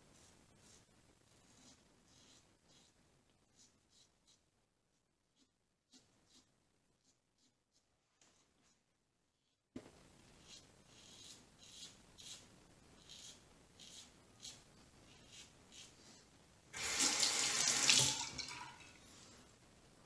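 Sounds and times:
razor scraping stubble: 10.4s - 16.0s.

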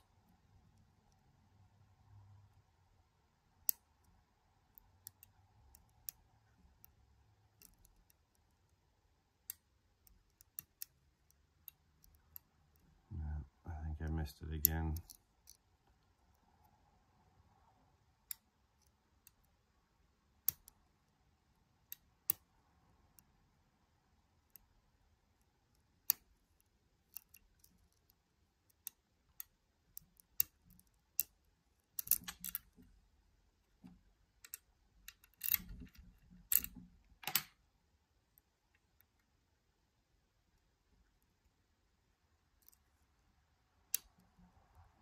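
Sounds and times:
lock pick metallic clicks: 14.6s - 15.6s, 27.1s - 31.4s, 32.0s - 32.8s, 34.4s - 37.6s.

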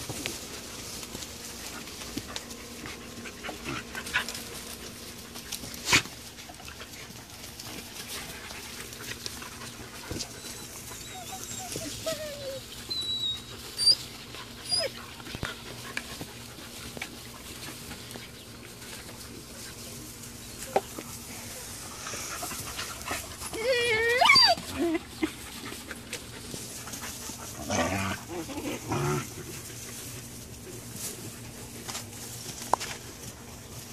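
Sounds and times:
dogs scuffling on dry grass: 0.0s - 33.9s
puppy whimpers: 10.3s - 15.0s, 23.5s - 25.3s.

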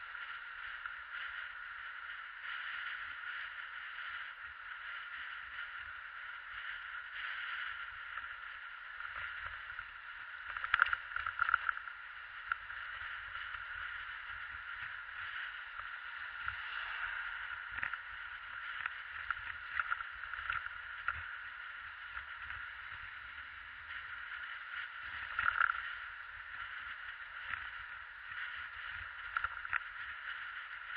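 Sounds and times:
wind and tyre noise: 0.0s - 30.9s.

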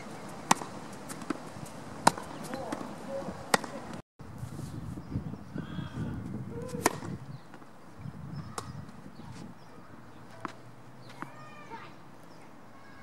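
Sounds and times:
tennis racket hitting ball: 0.1s - 3.9s, 6.7s - 7.1s
tennis ball knocks: 0.5s - 1.4s, 2.0s - 3.9s.

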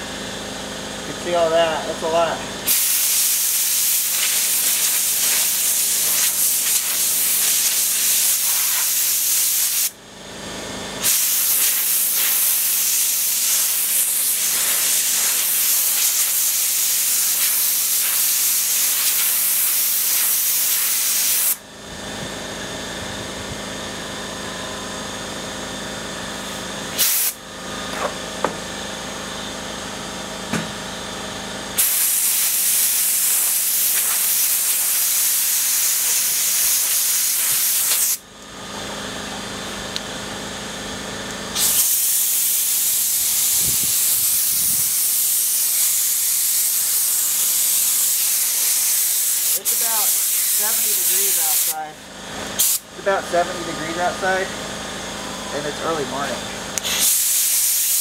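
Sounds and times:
compressed air blow gun hissing: 2.7s - 9.9s, 11.0s - 21.6s, 26.9s - 27.4s, 31.8s - 38.2s, 41.6s - 51.8s, 52.6s - 52.8s, 56.8s - 58.0s.

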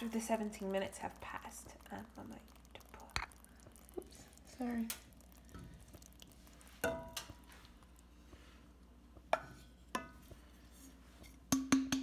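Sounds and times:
pot ringing: 6.8s - 7.3s
wooden spoon knocking on pot: 6.8s - 7.4s, 9.2s - 10.4s, 11.5s - 12.0s
background music with wood-block taps: 11.5s - 12.0s.

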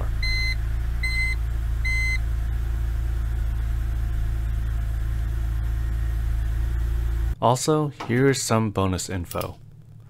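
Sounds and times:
car engine idling: 0.0s - 7.4s.

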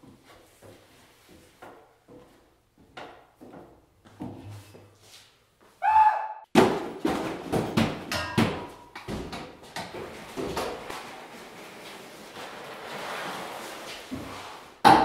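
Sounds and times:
person crying out: 5.8s - 6.4s
crash and thuds of falling: 6.6s - 9.3s.

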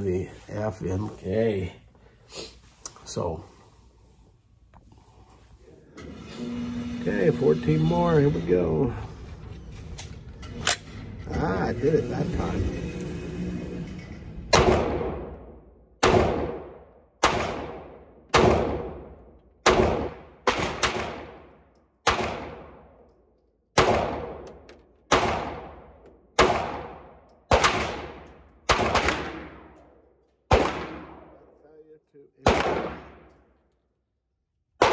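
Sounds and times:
pistol shots echoing indoors: 14.5s - 31.6s, 32.4s - 33.6s.

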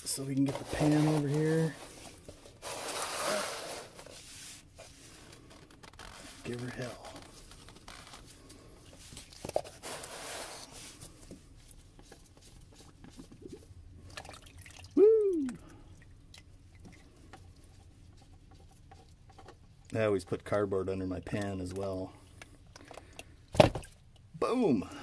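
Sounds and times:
man shouting: 15.0s - 15.6s.

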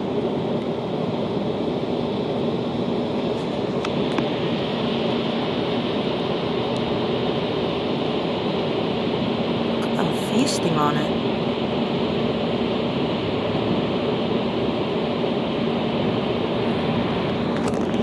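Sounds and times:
steady mechanical hum: 0.0s - 18.0s.

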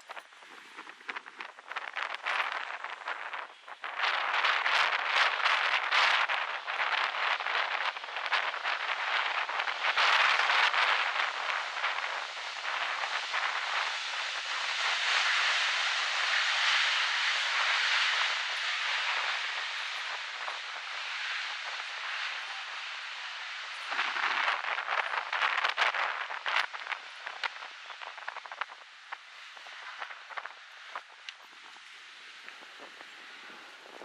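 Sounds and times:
jet engine rushing: 2.4s - 28.9s.

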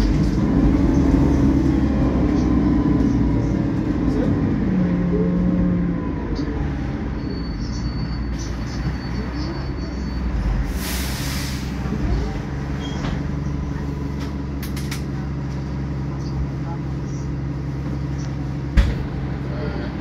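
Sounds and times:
bus diesel engine running: 0.0s - 20.0s
air brake hiss: 10.7s - 11.8s.

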